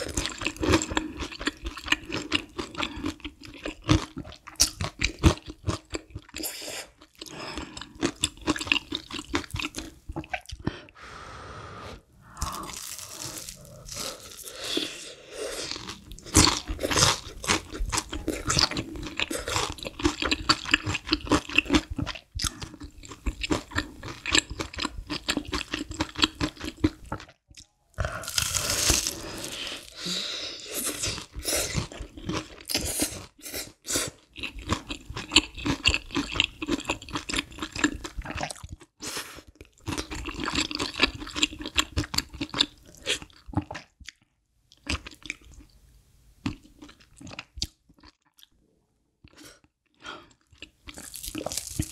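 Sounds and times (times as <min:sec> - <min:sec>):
crunching fried food: 0:07.0 - 0:10.5, 0:12.4 - 0:15.0, 0:15.6 - 0:27.3, 0:28.0 - 0:32.8, 0:34.2 - 0:38.9, 0:39.6 - 0:44.2, 0:50.4 - 0:51.9.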